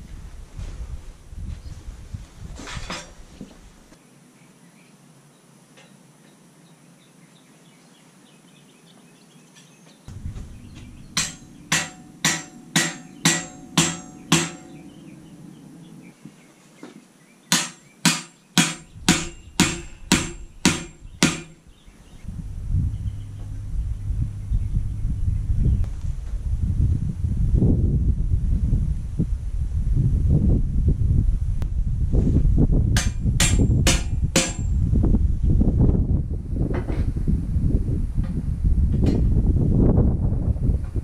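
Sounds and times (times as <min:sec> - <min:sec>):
hammer striking metal: 0:10.1 - 0:14.9, 0:17.5 - 0:21.6, 0:33.0 - 0:34.8.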